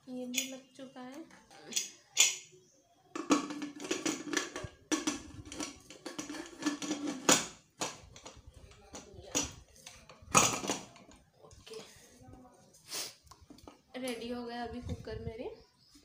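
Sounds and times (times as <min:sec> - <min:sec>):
metal lid clicking and scraping: 0:01.6 - 0:02.4, 0:03.2 - 0:08.4.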